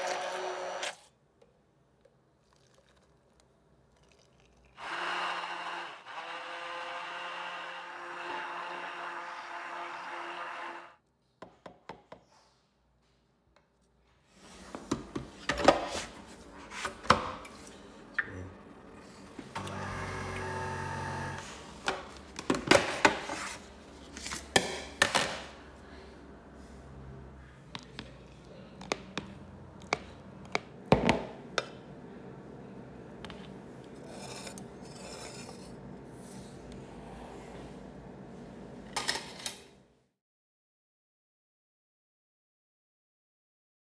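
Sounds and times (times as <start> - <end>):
machine hum: 17.7 - 22.3.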